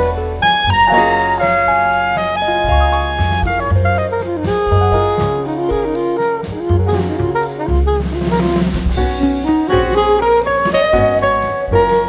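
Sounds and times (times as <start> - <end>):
bass: 0.0 - 12.0
drum kit: 0.0 - 12.0
saxophone melody: 0.0 - 12.0.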